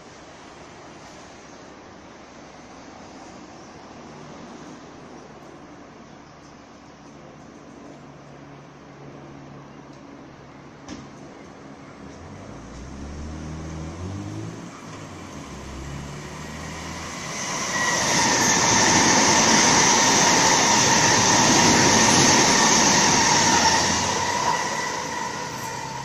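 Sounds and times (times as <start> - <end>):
electric train passing: 11.7 - 26.0.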